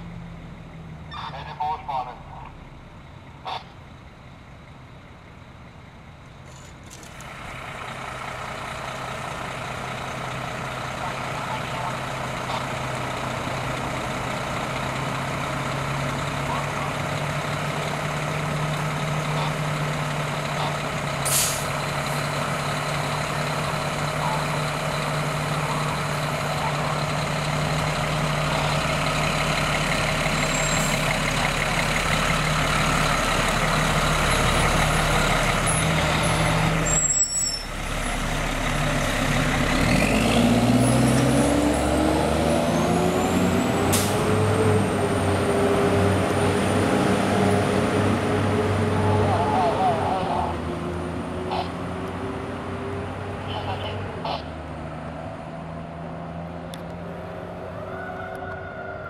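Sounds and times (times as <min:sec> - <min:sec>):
diesel truck engines running: 0:00.0 - 0:59.0
air brakes hissing: 0:21.2 - 0:21.8, 0:43.9 - 0:44.3.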